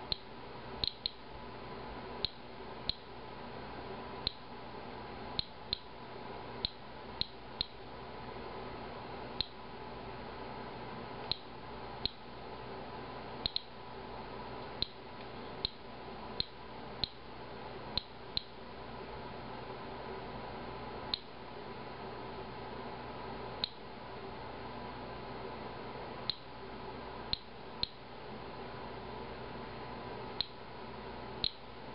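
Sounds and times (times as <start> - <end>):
faint steady hum: 0.0 - 31.9
geiger counter chirping: 0.1 - 1.2.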